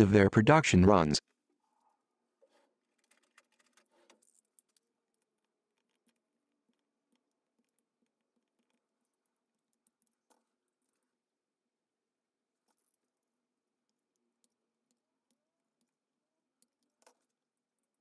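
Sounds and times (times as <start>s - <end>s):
small metal parts clicking: 2.9s - 7.8s.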